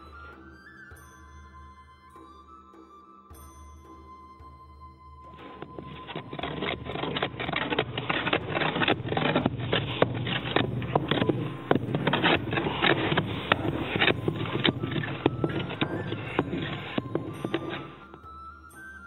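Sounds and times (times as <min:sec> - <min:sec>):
rammers thudding on earth: 0:05.7 - 0:18.2.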